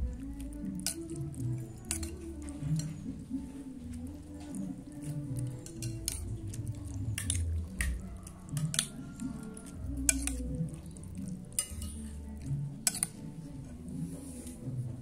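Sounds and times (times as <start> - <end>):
metal spoon scraping ceramic plate: 0.8 - 3.0, 5.5 - 10.5, 11.4 - 12.2, 12.8 - 13.8.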